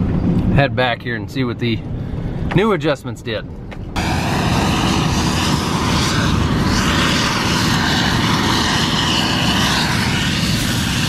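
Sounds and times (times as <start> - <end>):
combine harvester drone: 3.8 - 11.0
wind buffeting microphone: 4.0 - 11.0.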